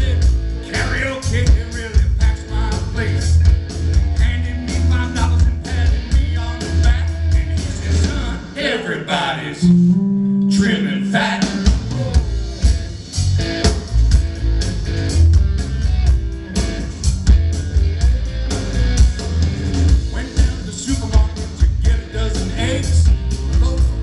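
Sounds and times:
drum kit beat: 0.0s - 8.6s, 9.6s - 24.0s
electric bass: 0.0s - 8.6s, 9.5s - 24.0s
blues band playing: 0.0s - 24.0s.

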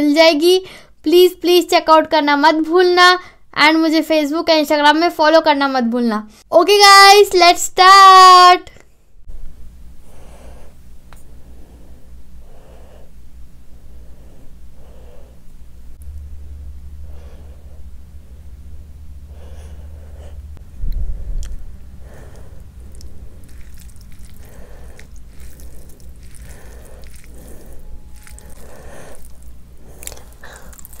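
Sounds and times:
low hum: 8.7s - 31.0s
breathing through nose: 10.0s - 13.2s, 19.3s - 20.5s, 22.0s - 31.0s
hand squelching mixing rice: 22.0s - 31.0s.

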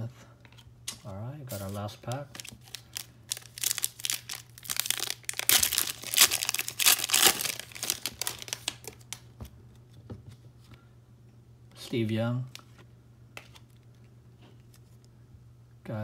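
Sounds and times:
foil pack tearing and crinkling: 1.5s - 9.2s.

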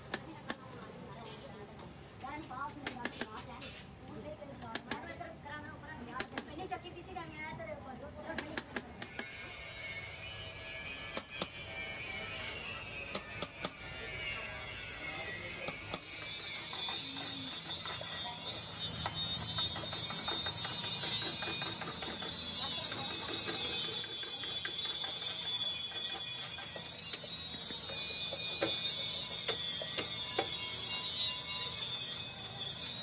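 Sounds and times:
metal snips: 2.8s - 3.4s, 4.6s - 5.1s, 6.1s - 6.6s, 8.3s - 9.4s, 10.9s - 11.6s, 13.1s - 13.8s
steady high-pitched tone: 9.1s - 33.0s.

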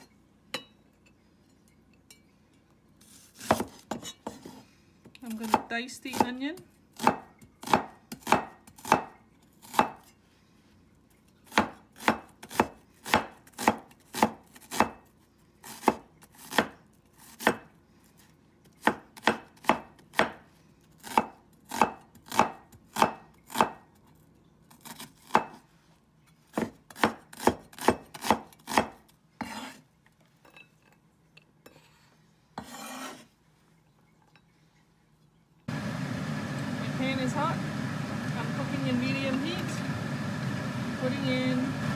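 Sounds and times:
cleaver chopping on wooden board: 7.0s - 9.1s, 11.5s - 15.0s, 18.8s - 20.4s, 21.1s - 23.8s, 26.6s - 29.6s
blade scraping board: 29.4s - 29.8s, 32.6s - 33.3s.

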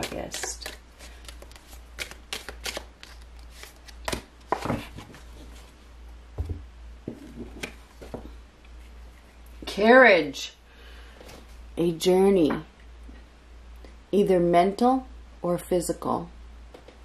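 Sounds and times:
cards being shuffled: 0.0s - 5.3s.

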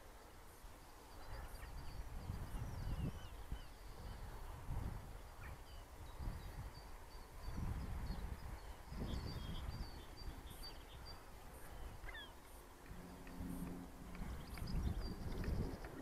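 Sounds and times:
wind buffeting microphone: 1.1s - 16.0s
birds chirping: 5.2s - 16.0s.

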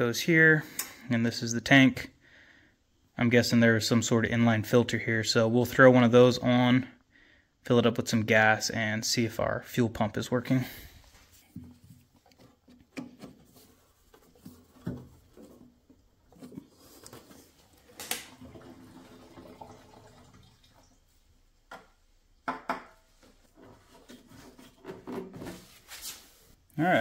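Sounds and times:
fuel pouring into plastic tank: 17.8s - 20.9s.

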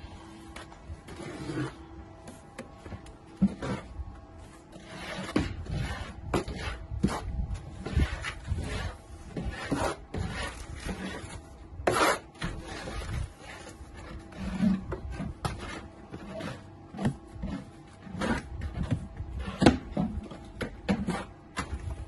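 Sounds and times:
trowel scraping mortar: 1.0s - 1.9s, 3.4s - 4.0s, 4.6s - 21.9s.

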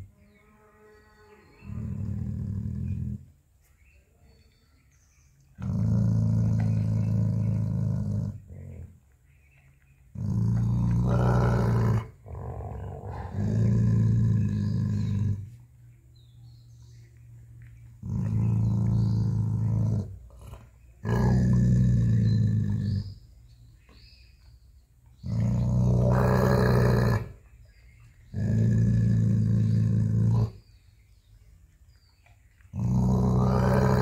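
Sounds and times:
dog growling: 1.6s - 3.3s, 5.6s - 8.9s, 10.1s - 15.6s, 18.0s - 23.2s, 25.2s - 27.4s, 28.2s - 30.6s, 32.7s - 34.0s.

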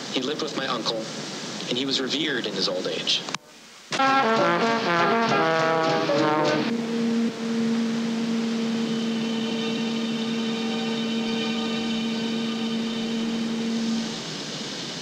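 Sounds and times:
even hiss: 0.0s - 15.0s
low droning hum: 6.7s - 14.9s.

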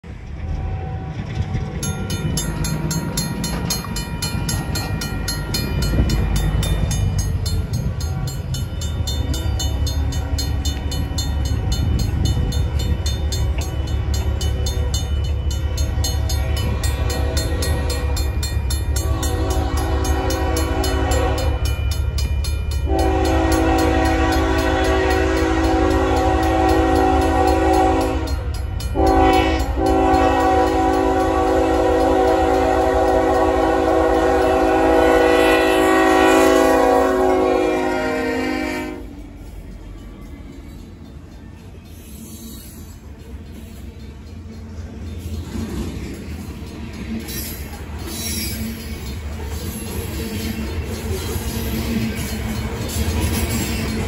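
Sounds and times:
crossing bell ringing: 0.4s - 54.0s
locomotive horn blasts: 16.5s - 18.3s, 18.9s - 21.7s, 22.9s - 28.4s, 29.0s - 39.2s.

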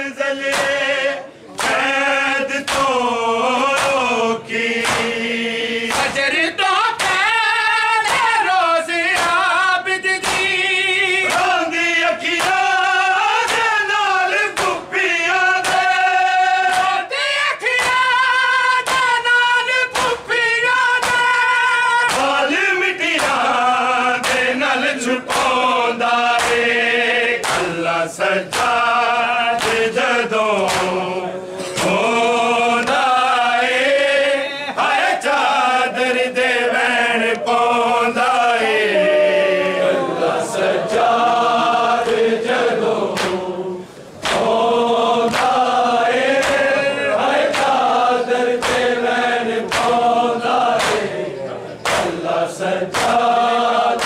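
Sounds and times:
men chanting in unison: 0.0s - 54.0s
hands slapping chests: 0.4s - 0.9s, 1.5s - 4.1s, 4.8s - 5.2s, 5.8s - 6.4s, 7.0s - 7.3s, 8.0s - 8.4s, 9.1s - 9.5s, 10.2s - 10.6s, 11.2s - 11.6s, 12.2s - 13.8s, 14.4s - 14.9s, 15.6s - 16.0s, 16.7s - 17.0s, 17.7s - 18.1s, 18.8s - 19.2s, 19.9s - 20.4s, 21.0s - 21.4s, 22.0s - 22.5s, 23.1s - 24.6s, 25.3s - 26.8s, 27.4s - 31.1s, 42.0s - 43.5s, 44.2s - 46.8s, 47.4s - 51.2s, 51.8s - 54.0s.

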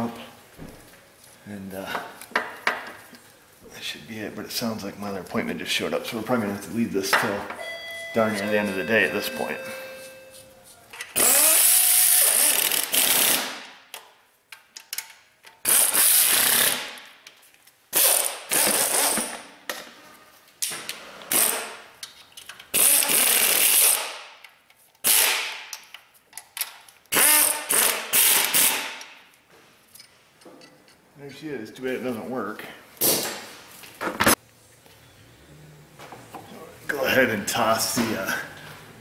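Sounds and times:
pneumatic wrench bursts: 11.2s - 13.6s, 15.6s - 17.0s, 17.9s - 19.4s, 21.3s - 21.8s, 22.7s - 24.2s, 25.0s - 25.6s, 27.1s - 29.0s.

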